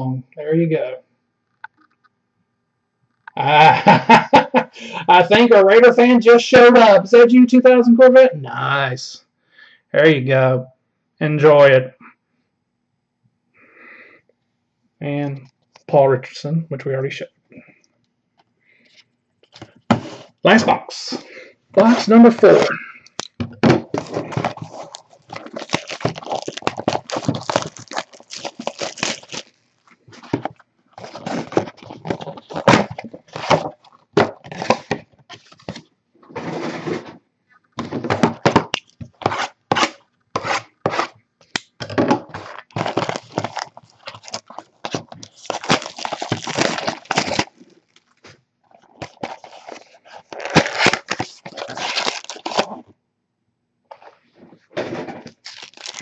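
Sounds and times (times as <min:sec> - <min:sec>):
plastic shrink wrap crinkling: 0:21.8 - 0:35.9, 0:42.3 - 0:52.9, 0:55.2 - 0:56.0.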